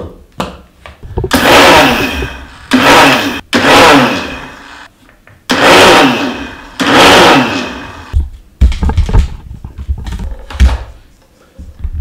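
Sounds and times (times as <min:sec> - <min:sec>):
mixer grinder motor bursts: 0:01.3 - 0:04.9, 0:05.5 - 0:08.2.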